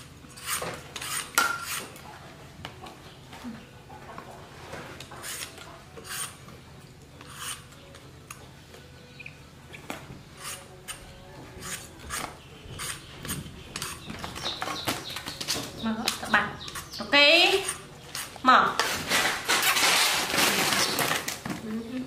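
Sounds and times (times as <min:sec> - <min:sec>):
vegetable peeler rasping: 0:00.3 - 0:01.9, 0:05.2 - 0:06.4, 0:07.2 - 0:07.8, 0:10.4 - 0:11.0, 0:11.6 - 0:14.6, 0:16.1 - 0:20.9.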